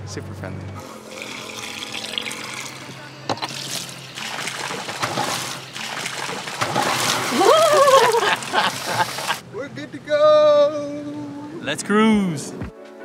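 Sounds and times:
water hose splashing on deck: 0:03.5 - 0:09.4.

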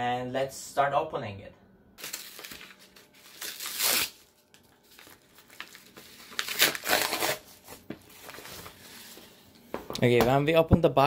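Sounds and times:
mailer bag tearing and crinkling: 0:02.0 - 0:08.8
loud rips: 0:03.3 - 0:04.2, 0:06.3 - 0:07.5.

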